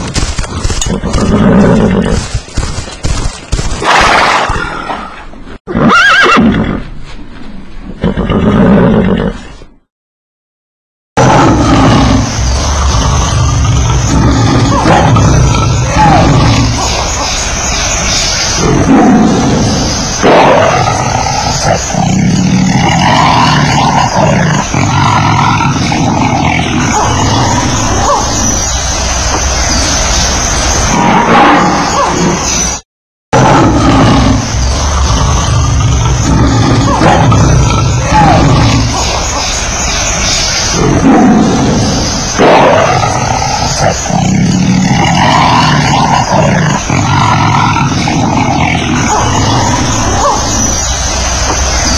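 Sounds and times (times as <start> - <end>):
lion growling: 11.2 - 29.8, 33.4 - 51.9.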